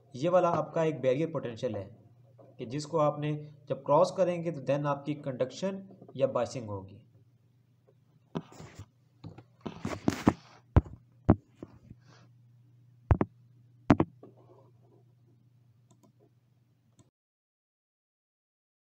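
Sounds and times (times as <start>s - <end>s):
steady low hum: 0.0s - 17.0s
sharp clicks and knocks: 13.1s - 13.3s, 13.9s - 14.4s.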